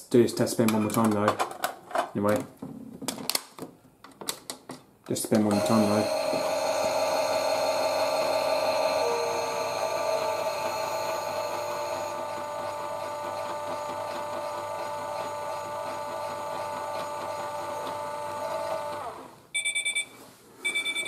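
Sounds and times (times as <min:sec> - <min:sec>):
toy washing machine motor whine: 0:05.5 - 0:19.3
quick high beeps: 0:19.6 - 0:21.0.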